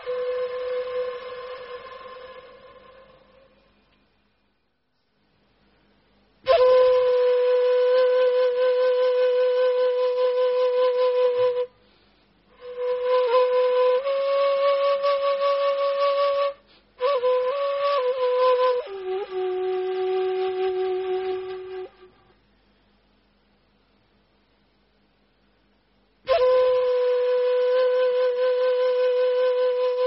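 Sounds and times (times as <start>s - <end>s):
flute-like wind instrument: 0.0s - 3.9s, 6.4s - 11.8s, 12.5s - 22.3s, 26.3s - 30.0s.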